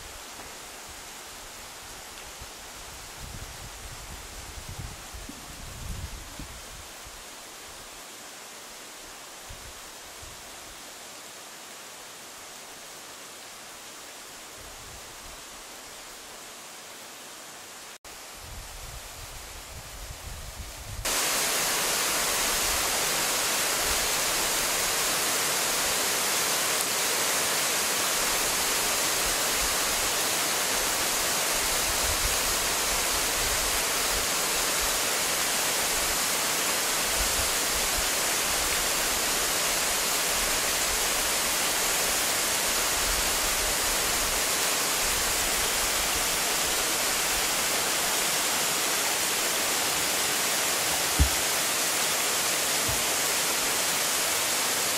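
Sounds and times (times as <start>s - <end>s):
waterfall rushing: 21.1s - 54.9s.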